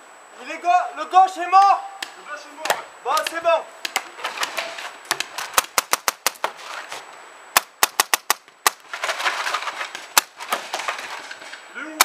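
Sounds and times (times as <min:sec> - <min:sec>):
paintball markers firing: 0:02.0 - 0:06.6, 0:07.6 - 0:08.9.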